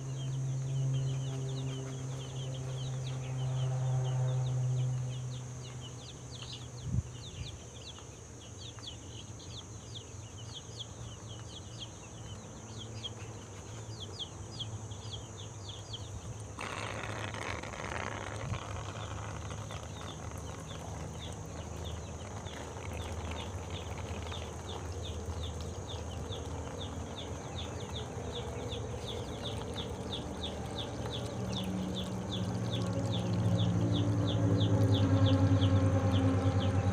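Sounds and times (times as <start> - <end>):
baby chicks peeping: 0.1 - 36.9
water trickling into pipe: 16.4 - 36.9.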